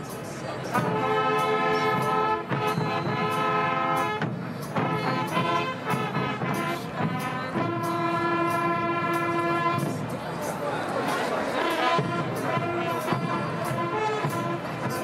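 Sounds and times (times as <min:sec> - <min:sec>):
brass instruments holding chords: 0:00.7 - 0:10.0, 0:11.6 - 0:15.0.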